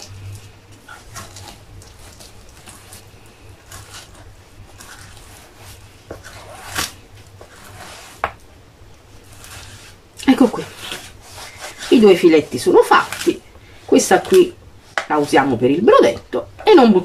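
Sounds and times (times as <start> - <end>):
knife scraping fish: 0.0 - 8.3, 9.2 - 13.4
low steady hum: 0.0 - 17.0.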